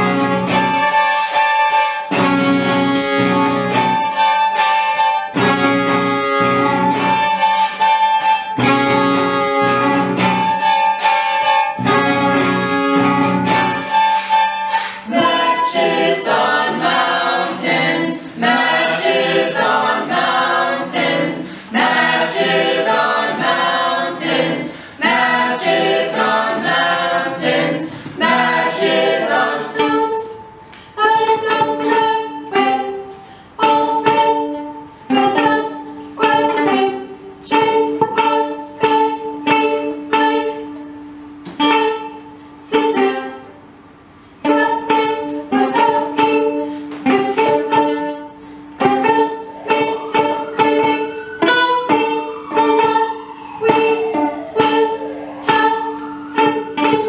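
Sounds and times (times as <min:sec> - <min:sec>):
chamber ensemble music: 0:00.0 - 0:57.0
people singing: 0:13.5 - 0:43.5, 0:44.4 - 0:57.0.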